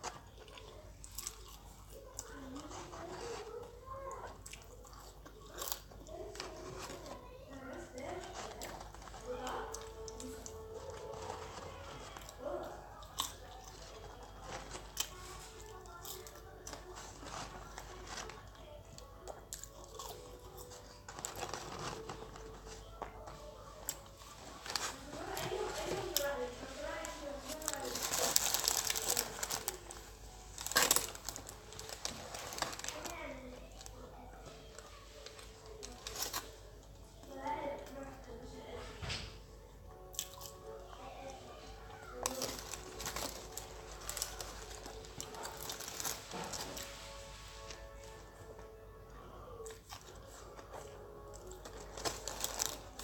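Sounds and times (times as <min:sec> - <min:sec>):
person chewing: 0:00.0 - 0:03.4, 0:04.2 - 0:07.0, 0:08.6 - 0:17.8, 0:19.1 - 0:22.0, 0:40.1 - 0:40.8
chewing fries: 0:00.0 - 0:38.0, 0:39.0 - 0:53.0
paper carton rustling: 0:06.2 - 0:12.7, 0:20.7 - 0:36.6, 0:41.6 - 0:48.2, 0:50.0 - 0:53.0.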